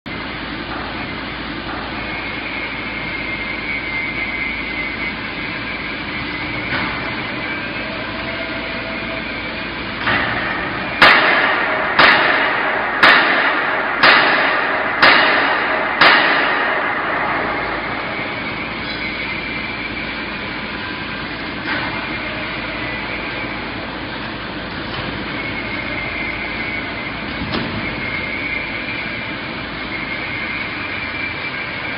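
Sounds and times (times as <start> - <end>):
conveyor machinery humming: 0.1 - 31.9
loud bangs: 10.0 - 31.9.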